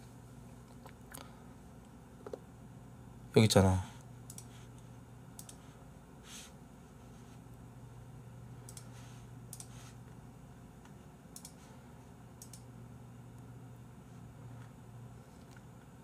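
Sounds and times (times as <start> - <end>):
steady low hum: 0.0 - 16.0
computer mouse and keyboard clicks: 12.4 - 12.6.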